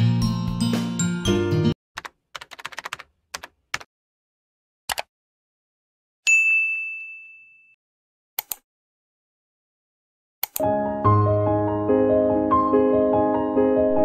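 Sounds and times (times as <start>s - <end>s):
notification bell ding: 6.3s - 7.8s
mouse clicks: 8.4s - 8.6s, 10.4s - 10.6s
soft piano music: 10.6s - 14.0s.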